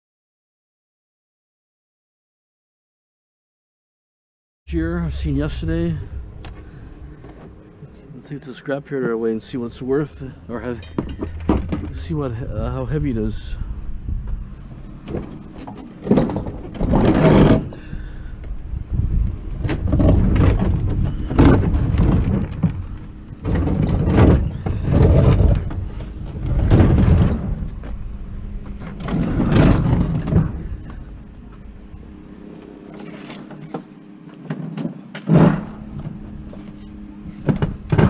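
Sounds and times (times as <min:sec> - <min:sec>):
faint steady hum: 0:04.7 - 0:38.0
refrigerator scraping and bumping: 0:08.9 - 0:13.6, 0:14.4 - 0:17.9, 0:18.9 - 0:31.2, 0:32.8 - 0:38.0.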